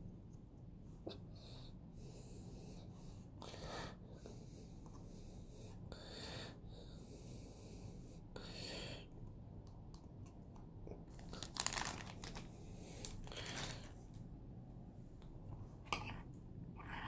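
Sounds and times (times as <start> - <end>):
plastic sheet crinkling: 11.1 - 14.0.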